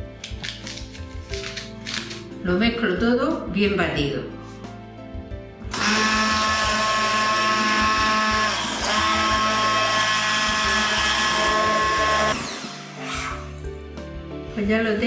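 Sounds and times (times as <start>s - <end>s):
hand blender motor whine: 5.7s - 13.5s.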